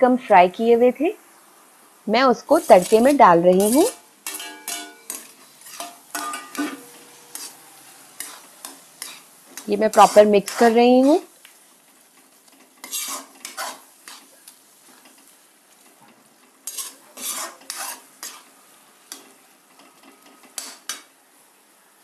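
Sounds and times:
faint frying sizzle: 0.0 - 22.0
steel ladle scraping metal pan: 2.6 - 11.3, 12.8 - 14.3, 16.6 - 18.5.

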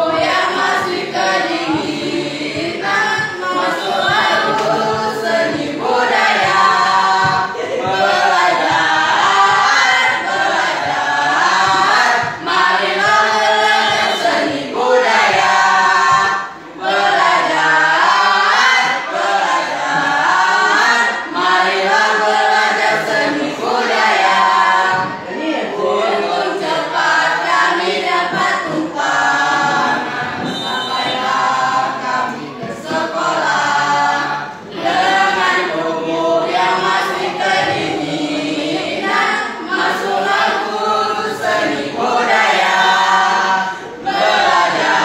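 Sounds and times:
group singing without instruments: 0.0 - 45.0.

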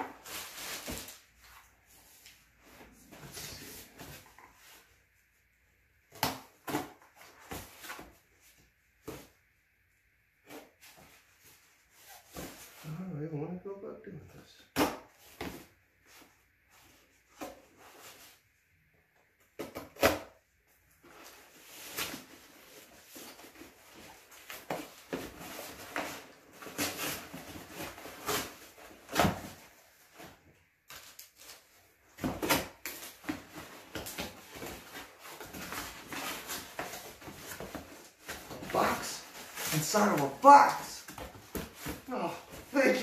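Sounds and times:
cardboard tearing and rustling: 0.0 - 1.3, 21.0 - 43.0.

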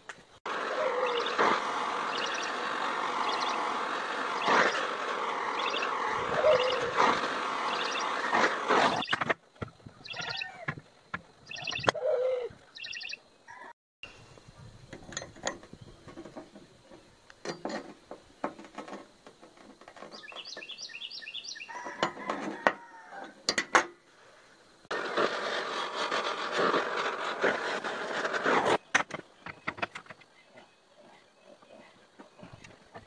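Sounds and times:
gas torch hissing: 0.6 - 8.8.

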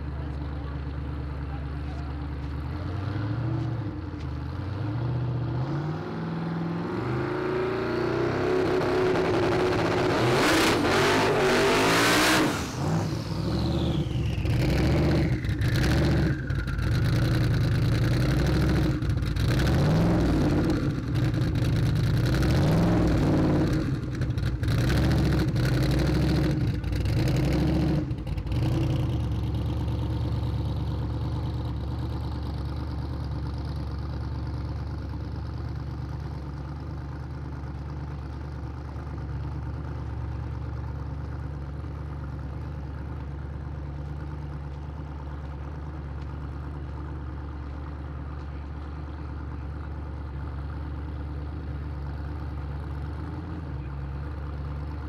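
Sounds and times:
car engine revving: 4.5 - 29.5.

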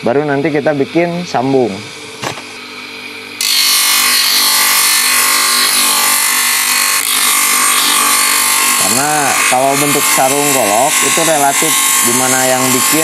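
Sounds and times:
grinder motor hum: 0.2 - 13.0
grinding wood: 3.4 - 13.0.

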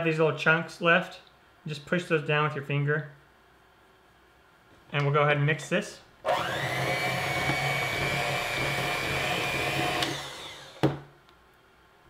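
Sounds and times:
electric hand mixer whining: 6.3 - 11.0.

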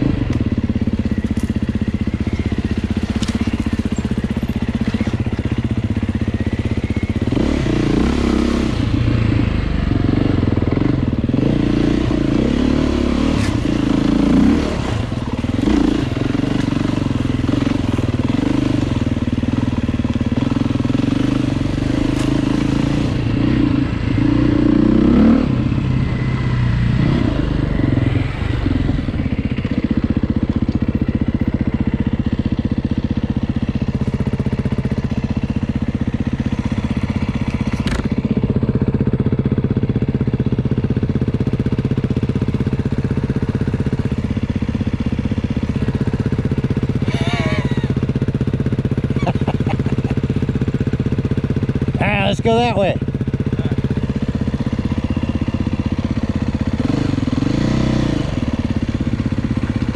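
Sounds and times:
vehicle engine revving: 0.0 - 30.0, 51.2 - 59.9.

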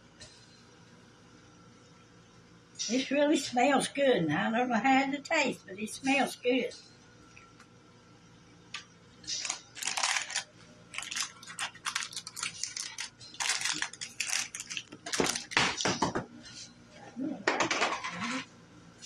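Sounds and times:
paper crumpling: 9.3 - 15.9
paper crinkling and rustling: 9.3 - 16.0.

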